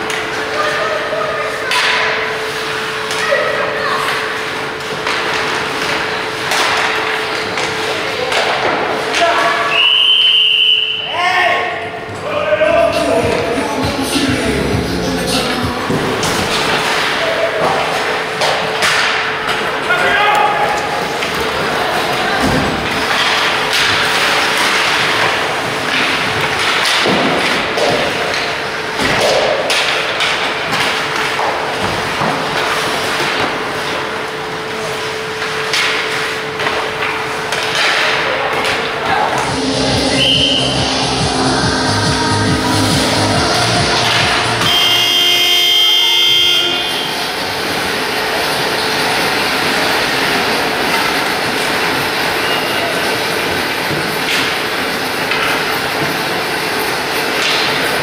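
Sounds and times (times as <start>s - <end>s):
ice rink noise: 0.0s - 58.0s
skates scraping on ice: 20.7s - 38.2s
steady hum: 20.8s - 58.0s
electric horn blast: 39.4s - 47.3s.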